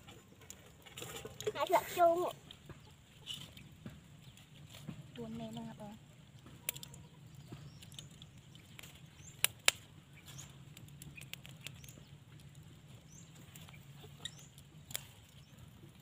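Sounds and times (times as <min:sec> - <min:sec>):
wooden sticks clicking and rustling: 0:06.4 - 0:12.7
sticks cracking: 0:07.8 - 0:12.5.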